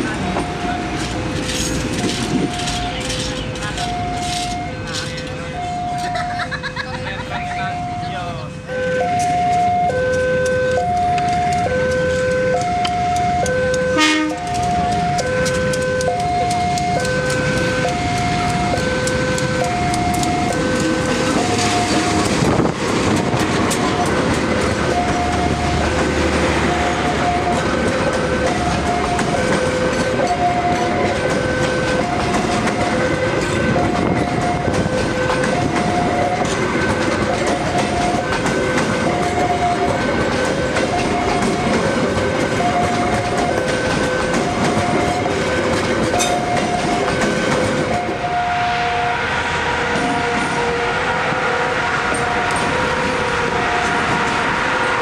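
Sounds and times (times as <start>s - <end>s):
level crossing two-tone alarm: 0.0s - 1.0s, 1.9s - 22.4s, 24.0s - 48.8s
train passing on rails: 0.0s - 55.0s
train horn blast: 13.5s - 16.2s, 45.3s - 55.0s.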